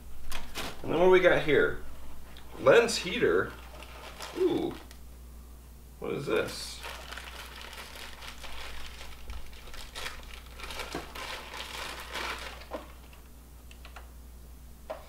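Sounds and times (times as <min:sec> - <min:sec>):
packaging crinkling and rustling: 0:03.4 - 0:05.0, 0:06.4 - 0:13.3.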